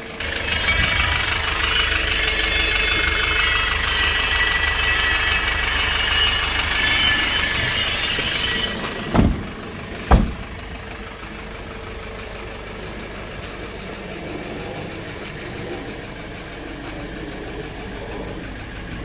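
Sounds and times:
diesel engine idling: 0.0s - 19.0s
door slamming: 7.5s - 10.7s.

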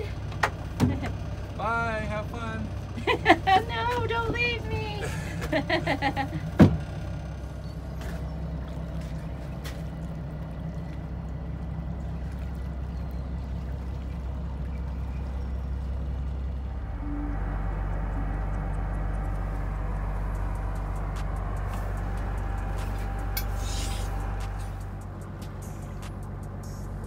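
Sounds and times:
boat diesel engine drone: 0.0s - 27.0s
voice: 1.6s - 2.7s, 3.4s - 5.1s.

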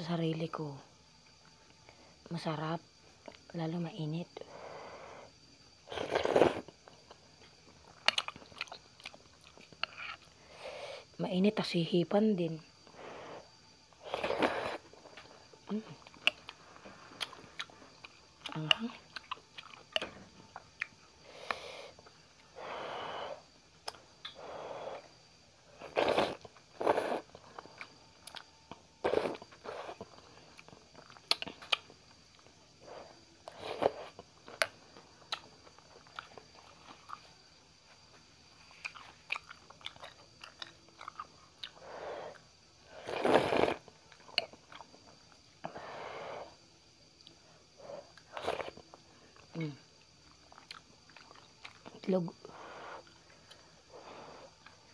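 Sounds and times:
chewing with small clicks: 6.8s - 10.3s, 15.9s - 22.5s, 27.3s - 28.8s, 29.4s - 32.5s, 34.2s - 37.4s, 38.1s - 42.5s, 43.8s - 45.4s, 48.0s - 52.1s, 53.0s - 53.7s, 54.5s - 54.9s
noodle slurping: 25.8s - 27.3s, 29.0s - 30.0s, 43.0s - 43.8s.

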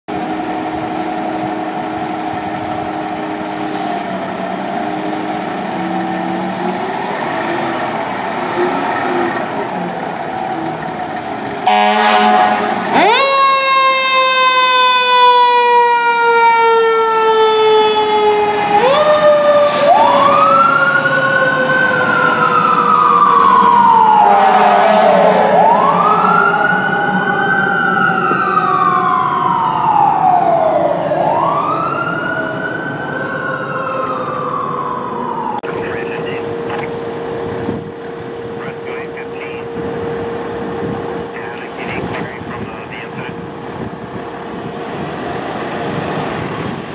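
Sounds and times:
horn blast: 11.6s - 13.0s, 24.2s - 25.3s
siren wailing: 11.6s - 43.5s
fire engine idling: 34.5s - 45.1s.

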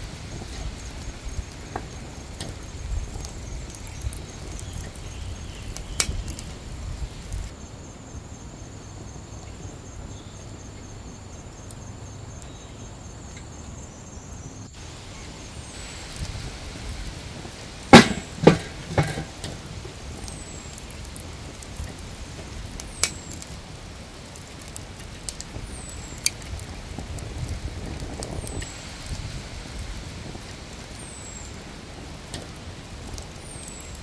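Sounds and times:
insect chirping trill: 0.0s - 34.0s
low wind rumble: 0.0s - 34.0s
sharp clicks: 2.3s - 6.6s.

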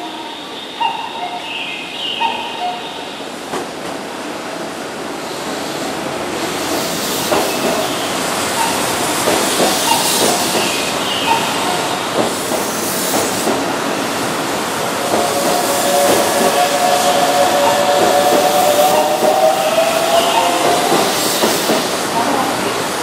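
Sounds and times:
train wheels clicking on rails: 5.4s - 23.0s.

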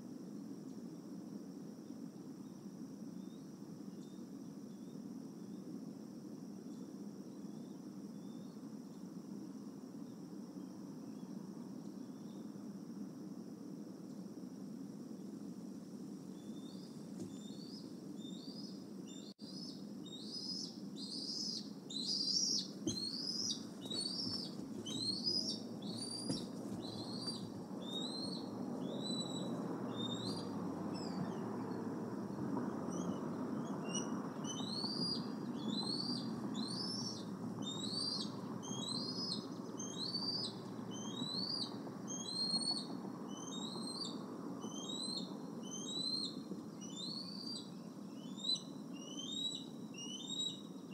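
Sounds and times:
low background noise: 0.0s - 50.9s
eagles' whistled begging chirps: 16.4s - 31.8s, 32.9s - 50.7s.

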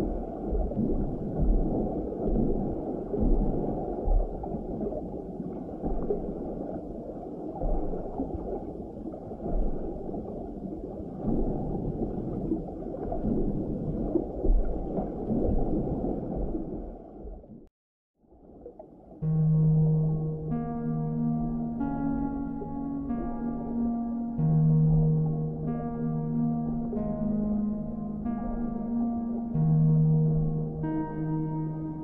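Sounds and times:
underwater bubbles gurgling: 0.0s - 17.7s.

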